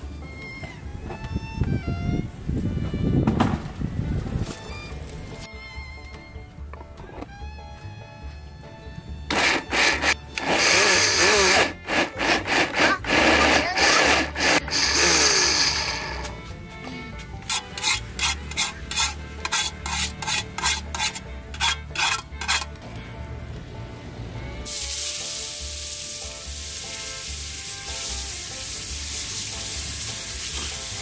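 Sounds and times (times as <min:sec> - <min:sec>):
blender grinding: 0:09.3 - 0:16.3
hand scrubbing wet metal pot: 0:09.3 - 0:16.3, 0:17.4 - 0:22.7.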